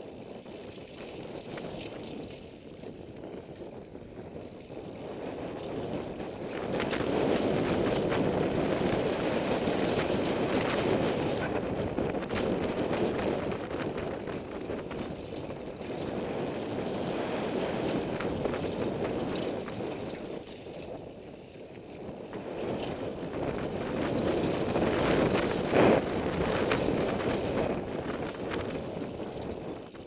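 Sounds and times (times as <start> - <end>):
bike chain and frame rattling: 0.0 - 30.0
wind rushing over microphone: 0.0 - 30.0
sharp bike clatter: 4.4 - 16.8, 17.7 - 21.0, 22.6 - 30.0.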